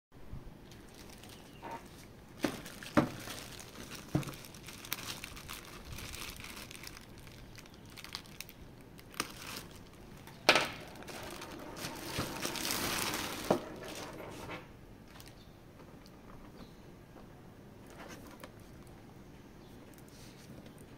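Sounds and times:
plastic and cardboard crinkling: 0:00.7 - 0:16.6.

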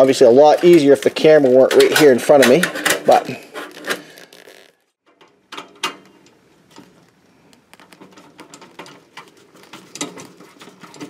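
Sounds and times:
metal cover plate clicks and scrapes: 0:00.6 - 0:04.0, 0:07.7 - 0:11.0.

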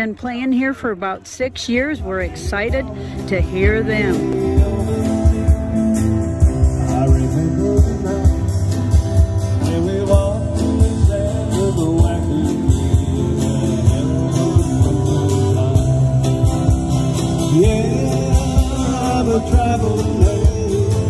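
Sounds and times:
strummed acoustic guitars: 0:00.0 - 0:21.0
steady drumbeat: 0:01.7 - 0:21.0
person singing: 0:03.2 - 0:21.0.

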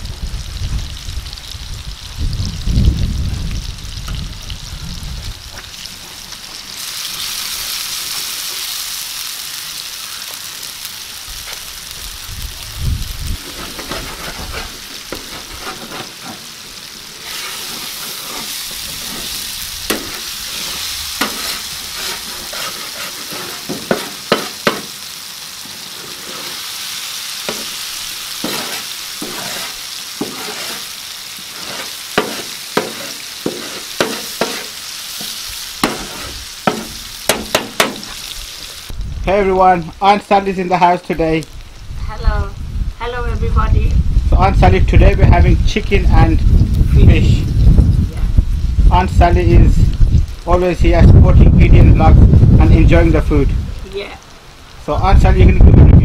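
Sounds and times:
fish sizzling in hot oil: 0:00.0 - 0:56.0
metal turner scraping pan: 0:13.3 - 0:16.6, 0:17.2 - 0:24.9, 0:25.8 - 0:26.7, 0:27.5 - 0:27.8, 0:28.4 - 0:38.3.

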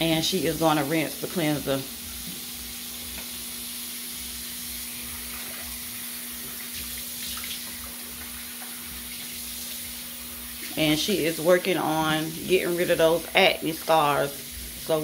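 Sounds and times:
faucet running: 0:00.0 - 0:15.0
water splashing on face: 0:04.8 - 0:10.8.

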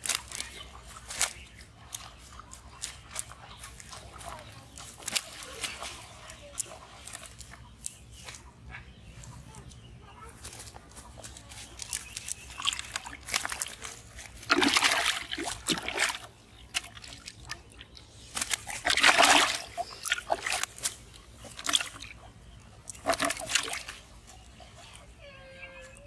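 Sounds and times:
fish splashing in bucket of water: 0:11.8 - 0:24.2.

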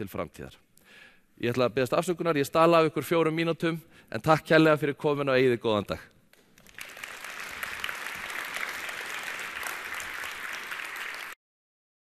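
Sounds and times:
audience applauding: 0:06.4 - 0:11.4.

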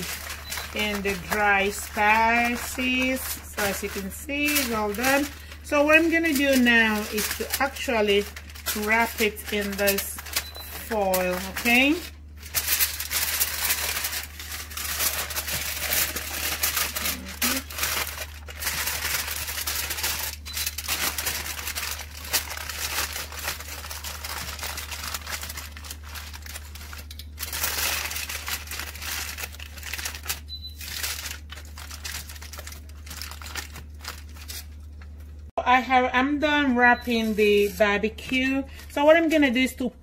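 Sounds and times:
aluminium foil crinkling: 0:00.0 - 0:35.5.

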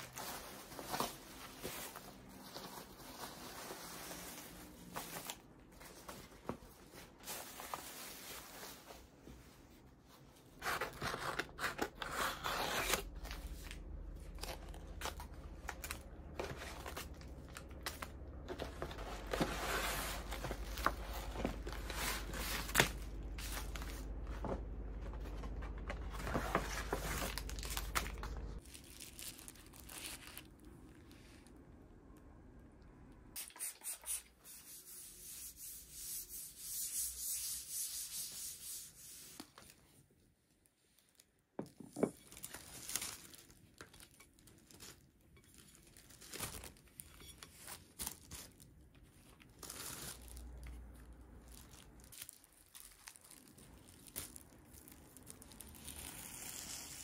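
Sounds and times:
packaging rustling and crinkling: 0:00.0 - 0:09.5, 0:12.8 - 0:31.5, 0:40.7 - 0:57.0.

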